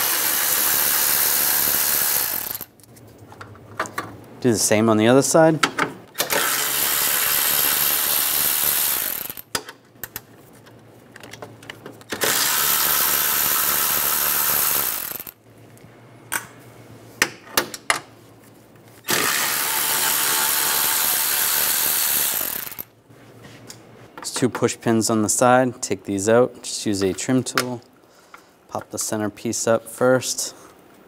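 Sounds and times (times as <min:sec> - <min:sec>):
power tool spinning: 0:00.0 - 0:02.7, 0:06.2 - 0:09.5, 0:12.1 - 0:15.4, 0:19.1 - 0:22.9.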